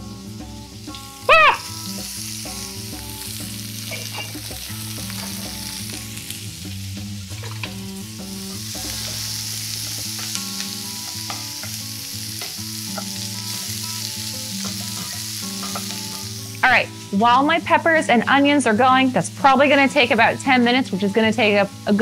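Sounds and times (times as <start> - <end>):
vegetables sizzling in oil: 0.0 - 22.0.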